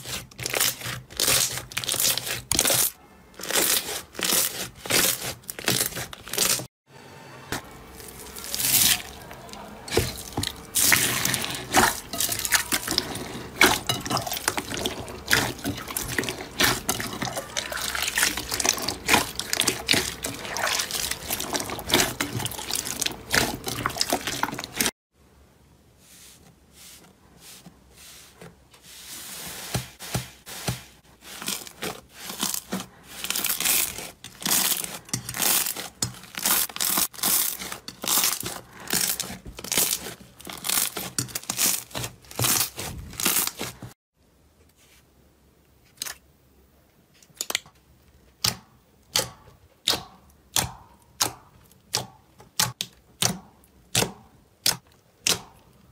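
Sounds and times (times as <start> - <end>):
wet slime squelching: 0.0 - 6.7, 7.9 - 24.9, 26.2 - 44.0.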